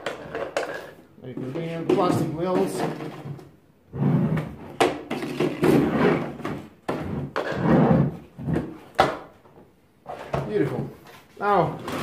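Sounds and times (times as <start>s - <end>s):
plastic vacuum parts clunking and rattling: 4.7s - 7.5s.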